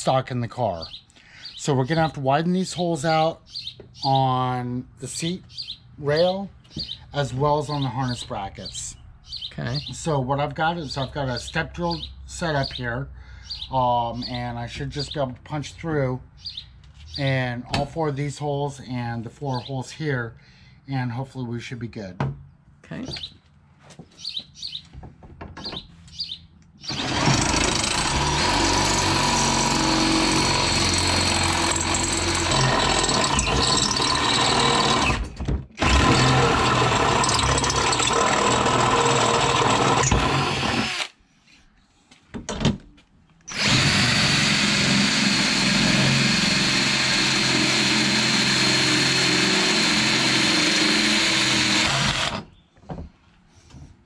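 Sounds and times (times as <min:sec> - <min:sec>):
cordless drill whining into metal: 0:26.8 - 0:41.2, 0:43.5 - 0:52.5.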